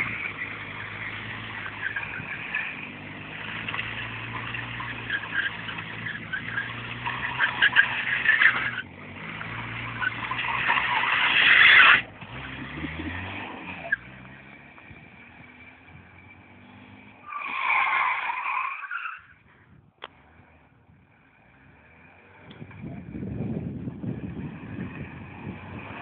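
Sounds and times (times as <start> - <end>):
tyres squealing: 0.0 - 14.2
car engine revving: 0.0 - 18.8, 20.0 - 26.0.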